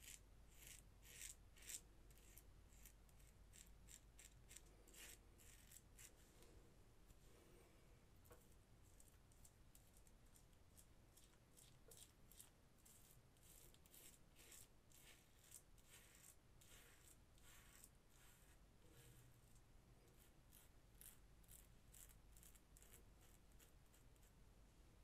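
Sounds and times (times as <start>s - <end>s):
razor scraping stubble: 11.2s - 19.1s.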